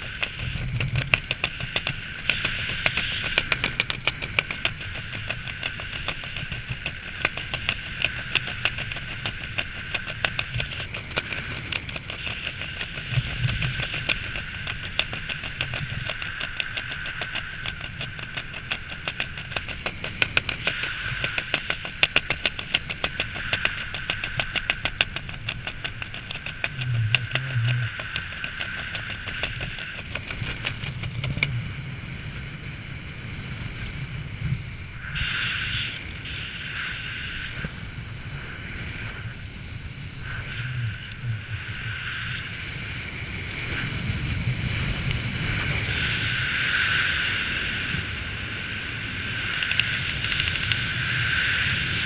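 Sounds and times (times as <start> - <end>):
rattling flutter: 0.0 - 31.8, 48.8 - 52.0
steady whine: 0.0 - 52.0
wind rushing past camera: 0.0 - 52.0.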